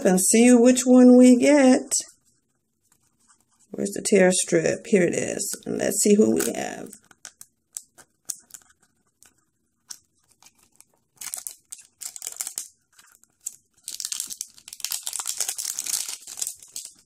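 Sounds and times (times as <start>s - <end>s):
foil wrapper crinkling: 6.2s - 17.0s.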